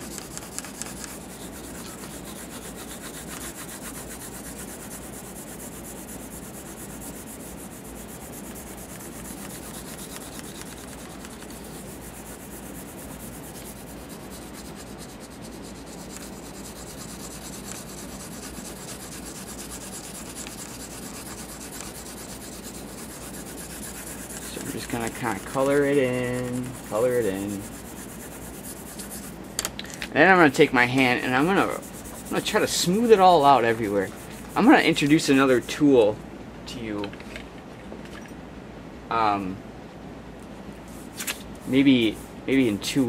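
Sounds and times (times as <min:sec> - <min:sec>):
pencil shading on paper: 0:00.0 - 0:29.4, 0:31.0 - 0:35.6.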